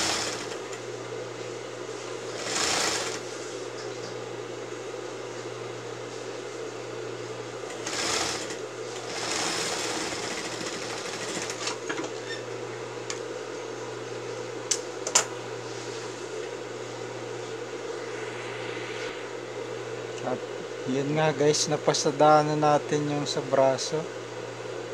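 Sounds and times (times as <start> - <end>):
sewing machine running: 0.0 - 0.7, 2.3 - 3.3, 7.7 - 11.8
sewing machine motor humming: 0.0 - 0.8, 2.3 - 3.3, 7.7 - 11.8.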